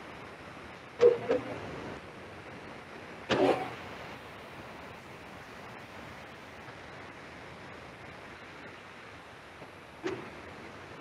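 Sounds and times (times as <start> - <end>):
low background hiss: 0.0 - 11.0.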